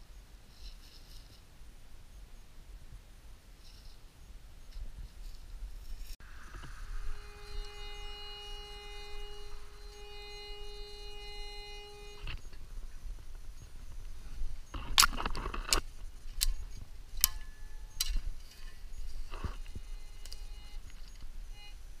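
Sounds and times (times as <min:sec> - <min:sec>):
metal detector steady tone: 0:06.2 - 0:22.0.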